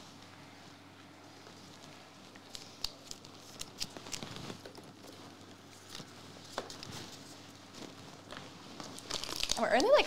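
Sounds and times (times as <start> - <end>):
foil wrapper crinkling: 2.5 - 10.0.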